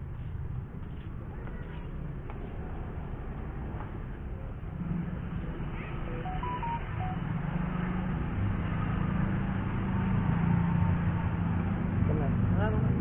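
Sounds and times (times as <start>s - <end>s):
motor scooters passing: 1.3s - 13.0s
short electronic beeps: 6.1s - 7.4s.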